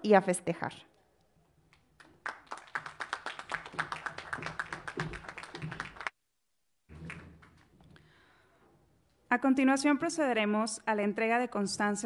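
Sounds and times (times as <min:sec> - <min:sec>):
people clapping: 0:01.7 - 0:06.2, 0:06.9 - 0:08.1.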